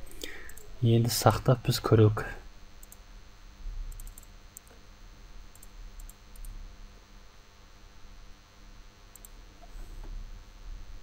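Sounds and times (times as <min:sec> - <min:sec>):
faint low hum: 0:00.0 - 0:11.0
computer mouse clicking: 0:00.2 - 0:00.7, 0:02.8 - 0:03.0, 0:03.9 - 0:04.8, 0:05.5 - 0:06.6, 0:09.1 - 0:09.4.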